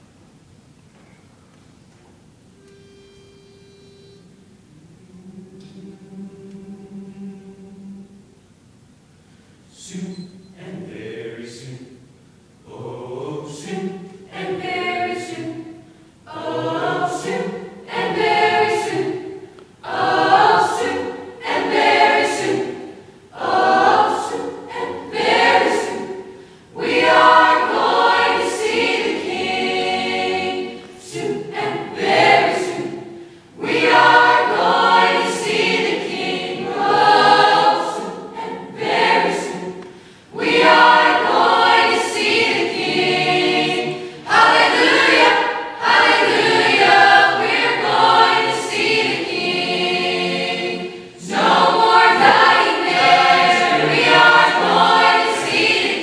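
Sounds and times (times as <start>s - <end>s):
choir singing in parts: 4.7s - 8.3s, 12.7s - 56.0s.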